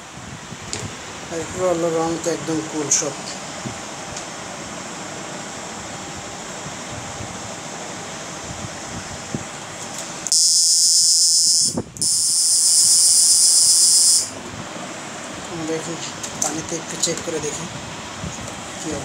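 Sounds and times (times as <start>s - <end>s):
inverter steady hiss: 0.0s - 19.0s
loud high-pitched hiss: 10.3s - 14.4s.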